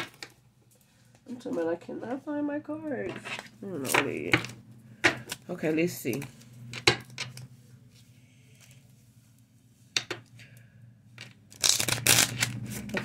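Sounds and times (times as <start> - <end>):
cards rustling: 11.2 - 13.0.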